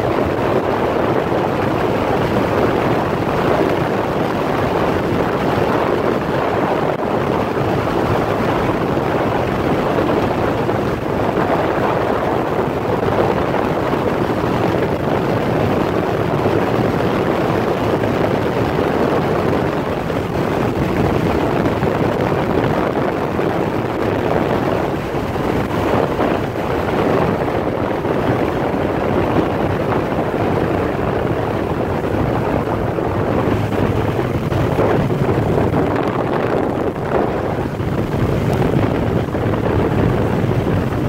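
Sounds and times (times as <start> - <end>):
road noise: 0.0 - 41.0
wind on microphone: 0.0 - 41.0.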